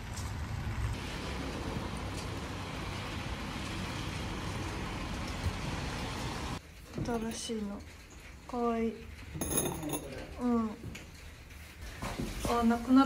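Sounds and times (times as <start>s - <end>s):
road traffic rumble and hiss: 0.0s - 6.6s.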